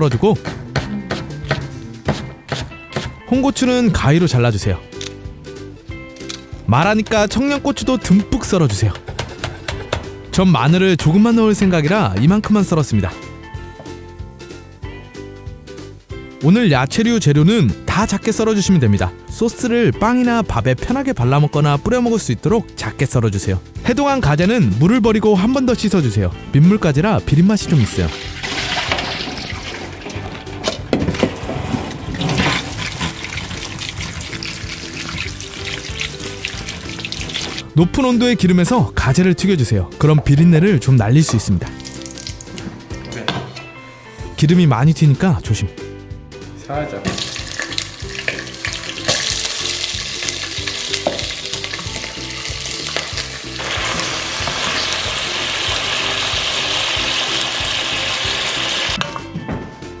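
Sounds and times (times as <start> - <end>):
tap water splashing into steel bowl: 28.1 - 30.4, 47.1 - 49.5, 50.9 - 51.4
deep-frying sizzle with spattering: 47.2 - 58.9.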